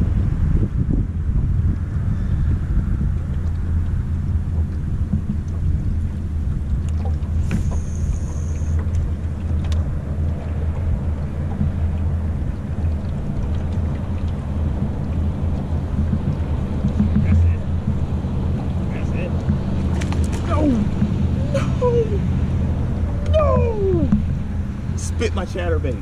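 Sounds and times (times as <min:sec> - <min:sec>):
low hum: 0:00.0 - 0:26.0
low rumble: 0:00.0 - 0:26.0
fishing reel whine: 0:07.5 - 0:08.9.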